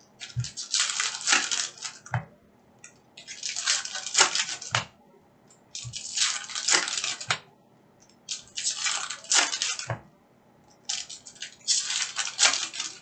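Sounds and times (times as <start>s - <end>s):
foil wrappers crinkling and tearing: 0.2s - 2.1s, 3.2s - 4.7s, 5.8s - 7.3s, 8.3s - 9.9s, 10.9s - 13.0s.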